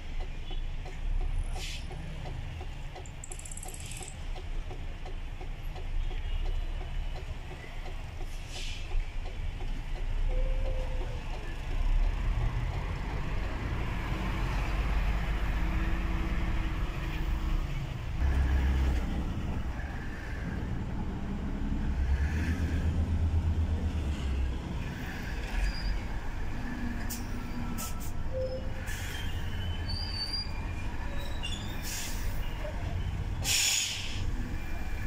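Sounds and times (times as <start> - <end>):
truck engine rumbling: 0.0 - 35.0
short air hisses: 33.4 - 34.3.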